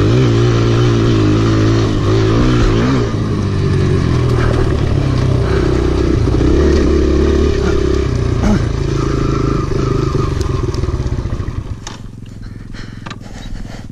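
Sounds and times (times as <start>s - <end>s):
motorcycle engine revving: 0.0s - 13.9s.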